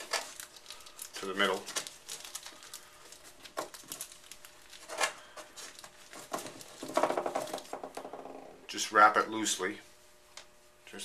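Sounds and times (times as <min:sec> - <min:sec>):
plastic crinkling and rustling: 0:00.0 - 0:08.1.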